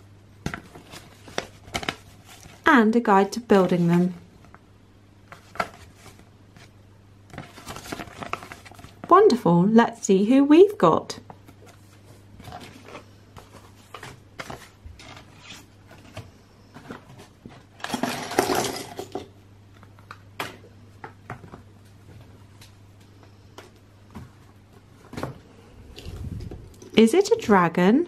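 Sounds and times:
plastic packet rustling: 0:07.4 - 0:09.0
plastic pieces clattering: 0:17.8 - 0:19.3.

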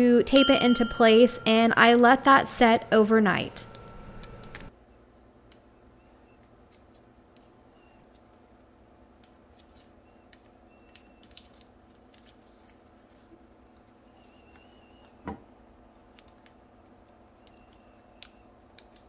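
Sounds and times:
low steady hum: 0:00.0 - 0:04.8.

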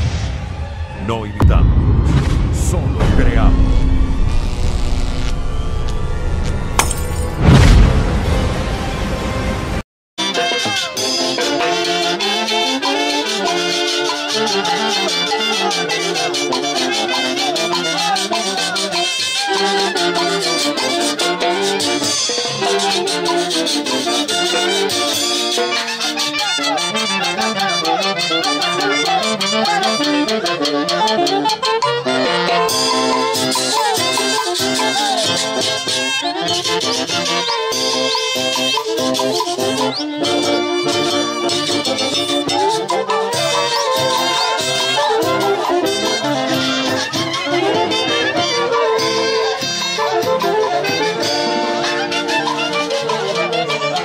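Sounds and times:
wind instruments playing melody: 0:10.2 - 0:54.0
folk orchestra music: 0:34.0 - 0:54.0.

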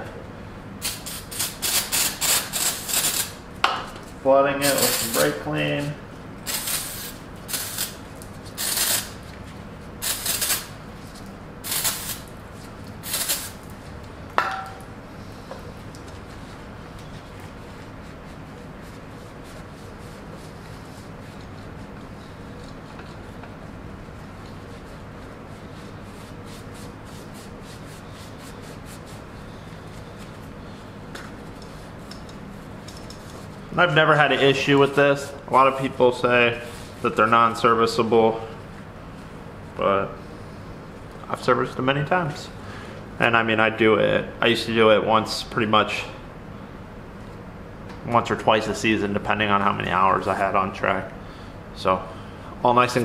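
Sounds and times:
aerosol spray hissing bursts: 0:11.6 - 0:12.2, 0:13.0 - 0:13.6.

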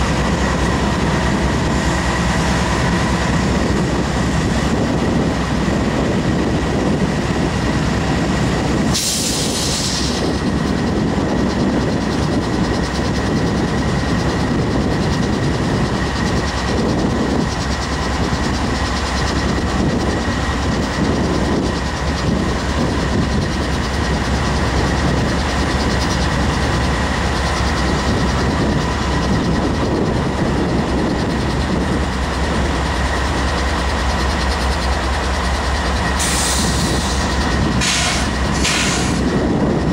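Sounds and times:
constant high whine: 0:00.0 - 0:39.9
diesel locomotive engine drone: 0:00.0 - 0:39.9
air hiss burst: 0:08.9 - 0:10.2, 0:36.2 - 0:39.2.

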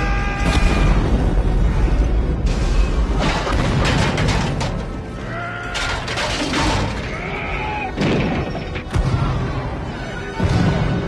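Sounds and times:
dramatic film score: 0:00.0 - 0:11.0
crashing crackling debris: 0:03.1 - 0:09.2.

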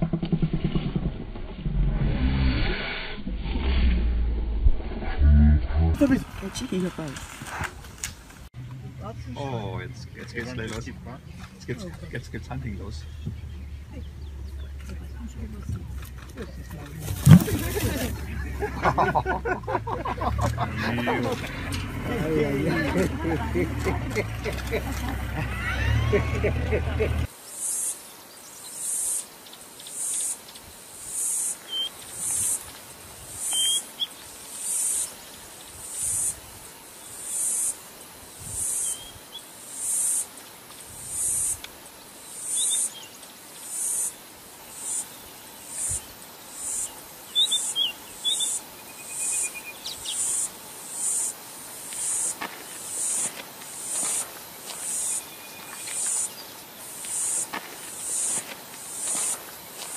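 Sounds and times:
insects buzzing in pulses: 0:17.0 - 0:59.9
faint bird chirps: 0:33.4 - 0:35.2, 0:42.4 - 0:51.3.

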